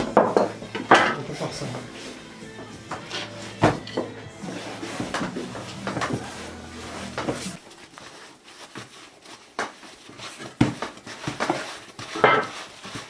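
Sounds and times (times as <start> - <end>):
background music: 0.0 - 7.6
dough slapping on wooden table: 8.6 - 13.0.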